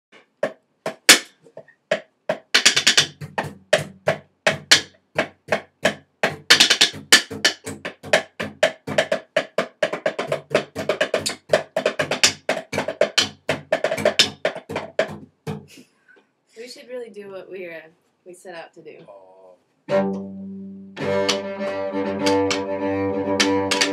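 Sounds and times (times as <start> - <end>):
sticks drumming on cardboard box: 0.4 - 15.7, 21.0 - 23.9.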